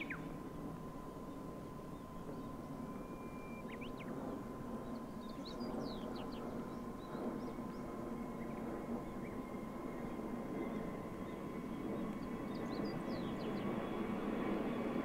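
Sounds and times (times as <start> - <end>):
small birds chirping: 1.2 - 14.1.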